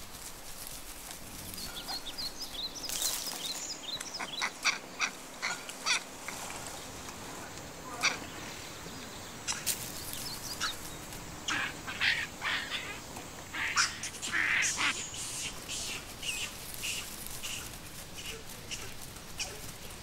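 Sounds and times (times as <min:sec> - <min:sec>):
monkeys squealing and chattering: 0:11.4 - 0:19.7.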